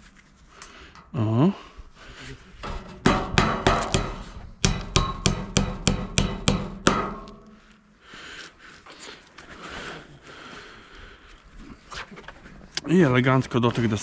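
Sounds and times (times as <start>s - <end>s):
hammer driving a nail: 3.0s - 7.6s.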